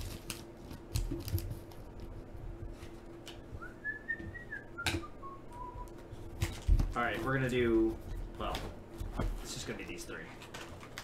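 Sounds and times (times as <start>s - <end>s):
person whistling: 3.6s - 6.0s
card packs clicking and rustling: 10.4s - 11.0s.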